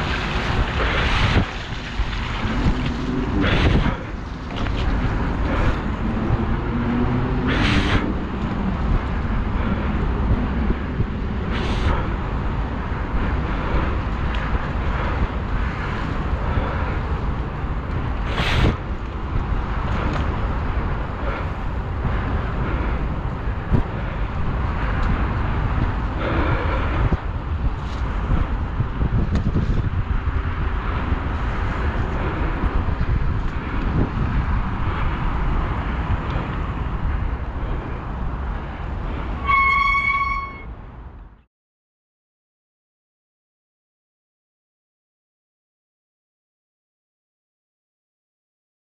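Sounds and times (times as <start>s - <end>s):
wind buffeting microphone: 0.0s - 39.5s
short high toot: 39.4s - 40.7s.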